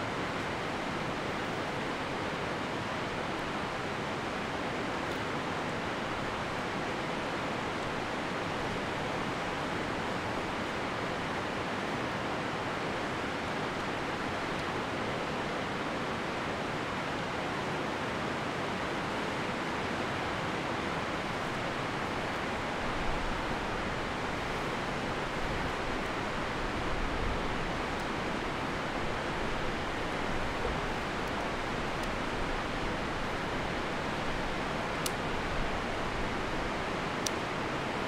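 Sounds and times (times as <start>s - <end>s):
river rapids rushing: 0.0s - 38.0s.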